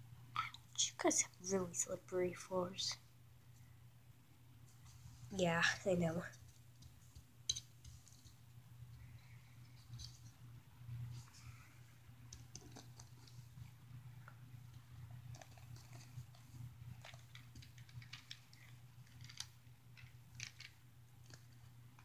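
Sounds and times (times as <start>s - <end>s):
low steady hum: 0.0s - 22.0s
plastic toys clicking on carpet: 15.4s - 21.6s.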